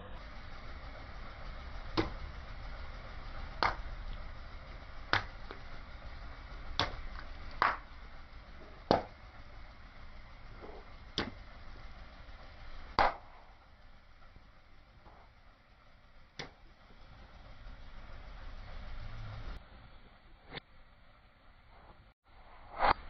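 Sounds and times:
water balloons popping: 1.9 - 2.4, 3.4 - 4.3, 5.1 - 5.7, 6.8 - 8.0, 8.6 - 9.2, 10.6 - 11.5, 12.9 - 13.5.

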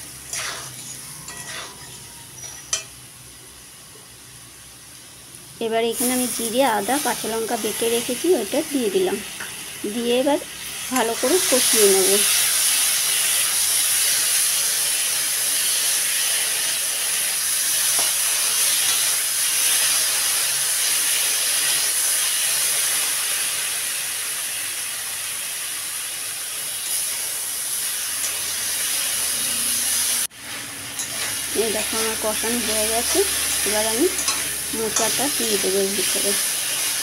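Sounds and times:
paste sizzling in hot oil: 0.0 - 37.0.

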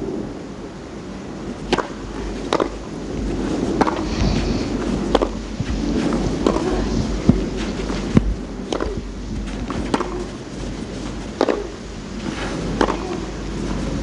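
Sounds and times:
background hiss: 0.0 - 14.0
tennis ball struck by rackets: 1.7 - 2.8, 3.8 - 4.1, 5.1 - 5.4, 6.4 - 6.8, 8.2 - 10.4, 11.4 - 13.3.

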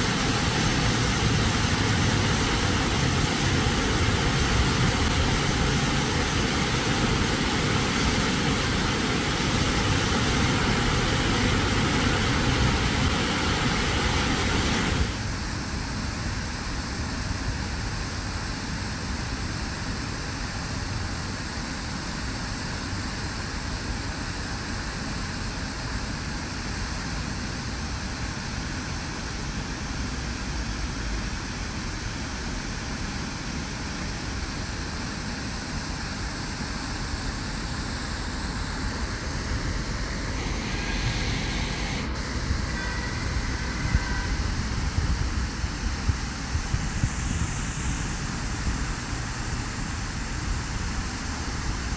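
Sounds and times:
fountain water splashing: 0.0 - 15.3
road traffic: 0.0 - 15.4, 37.5 - 46.2
tram passing with squealing: 40.1 - 44.9.

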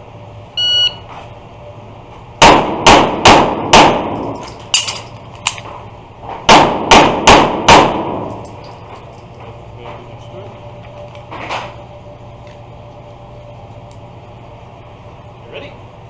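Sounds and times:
shot timer beep: 0.6 - 1.0
handgun shots echoing: 6.5 - 8.6.

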